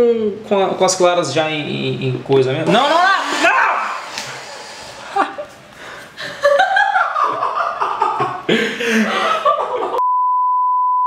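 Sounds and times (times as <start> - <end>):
men laughing: 2.7 - 10.0.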